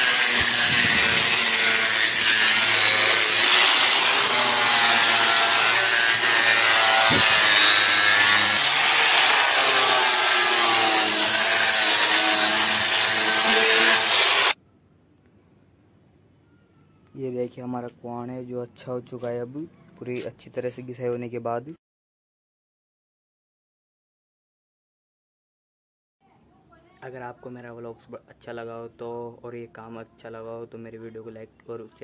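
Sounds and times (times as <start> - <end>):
angle grinder sanding wood: 0.0 - 14.6.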